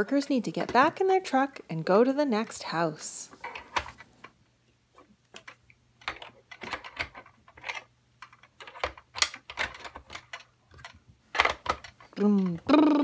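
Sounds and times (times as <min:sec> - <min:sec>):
plastic toy clicks and knocks: 0:05.3 - 0:12.7.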